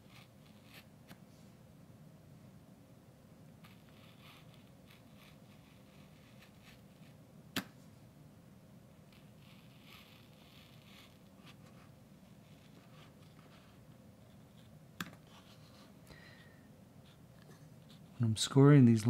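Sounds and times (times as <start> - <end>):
pencil scratching on wood: 0.0 - 0.9, 3.6 - 7.2, 9.1 - 15.9.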